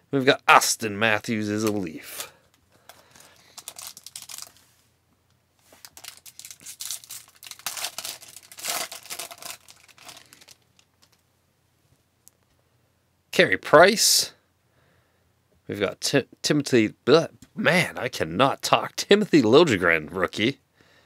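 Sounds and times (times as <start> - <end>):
foil wrapper crinkling and tearing: 3.1 - 4.6, 5.7 - 11.2.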